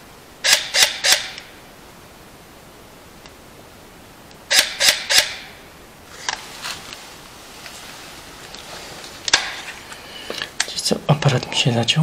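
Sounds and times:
camera shutter clicking: 0:00.5 - 0:01.5, 0:04.5 - 0:05.4.

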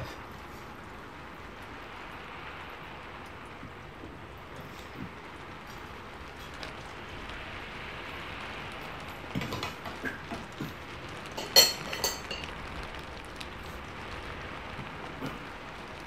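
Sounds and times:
rain hissing: 0:00.0 - 0:16.0
utensils clinking on plate: 0:11.4 - 0:12.5.

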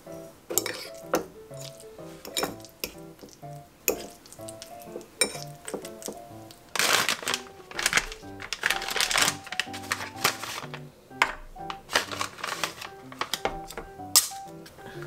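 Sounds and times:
light background music: 0:00.0 - 0:15.0
fork scraping ceramic bowl: 0:00.6 - 0:01.0.

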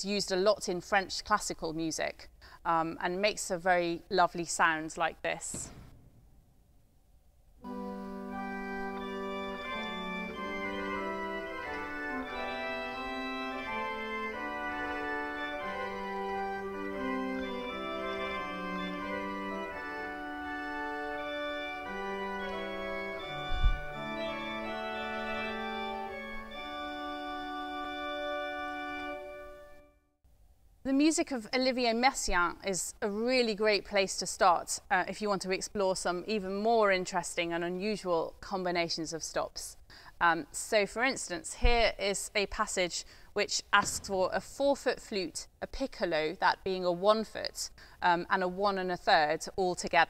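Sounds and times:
low thump: 0:05.4 - 0:06.6, 0:23.5 - 0:24.0, 0:43.8 - 0:44.4
pipe organ melody: 0:07.6 - 0:30.0.

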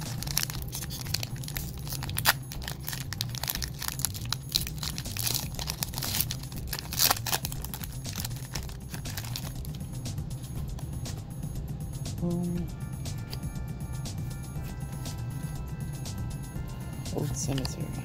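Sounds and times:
foil wrapper crinkling and tearing: 0:00.0 - 0:09.8.

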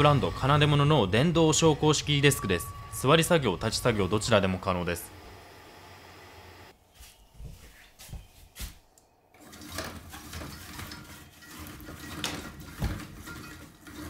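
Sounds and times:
window blind rattling: 0:09.4 - 0:14.0.

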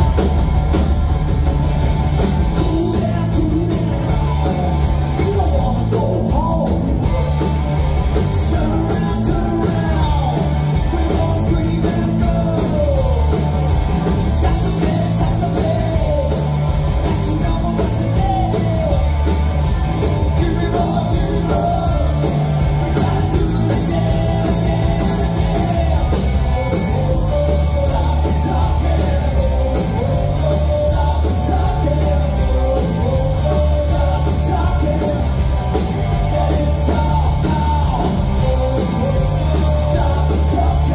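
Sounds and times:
live rock band playing: 0:00.0 - 0:40.9
person singing: 0:02.5 - 0:07.4, 0:08.3 - 0:13.4, 0:20.2 - 0:40.9.

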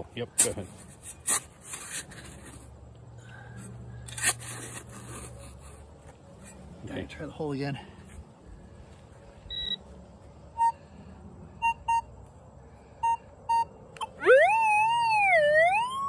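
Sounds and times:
metal detector continuous tone: 0:09.4 - 0:09.8, 0:10.5 - 0:10.8, 0:11.6 - 0:12.2, 0:13.0 - 0:16.0
metal detector short beeps: 0:09.5 - 0:09.8, 0:13.0 - 0:13.7.

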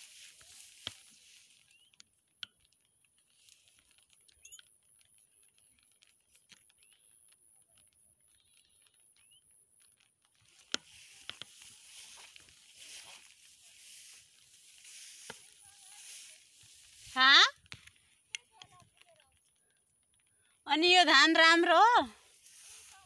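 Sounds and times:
rice stalks brushing phone: 0:00.0 - 0:01.9, 0:10.4 - 0:17.5, 0:22.2 - 0:23.0.

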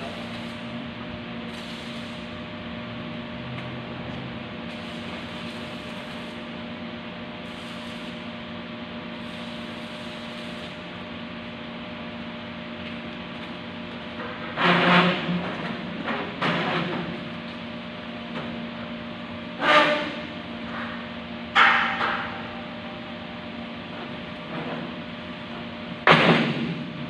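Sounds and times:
welding arc hiss and crackle: 0:00.0 - 0:02.5, 0:03.5 - 0:11.6
electrical hum: 0:00.0 - 0:16.4.

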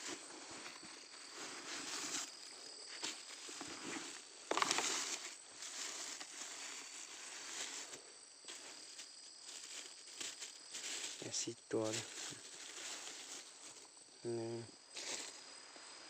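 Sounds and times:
faint insect trill: 0:00.0 - 0:16.0
dry leaves rustling and crunching: 0:03.1 - 0:13.9, 0:15.0 - 0:15.4.

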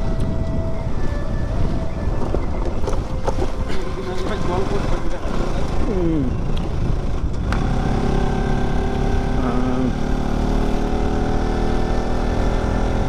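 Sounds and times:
motorcycle engine running: 0:02.8 - 0:13.0.

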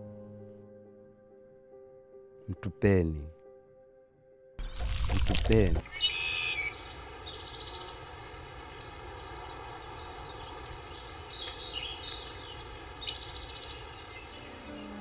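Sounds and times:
birds chirping in trills: 0:05.8 - 0:08.2, 0:08.8 - 0:15.0.

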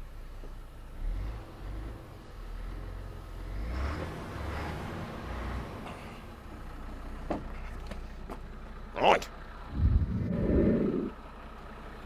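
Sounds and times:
diesel lorry engine idling: 0:04.4 - 0:12.0.

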